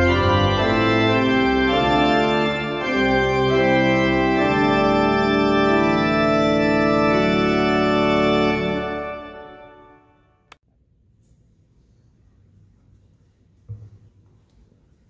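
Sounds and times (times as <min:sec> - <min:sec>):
pipe organ playing a hymn: 0:00.0 - 0:10.2.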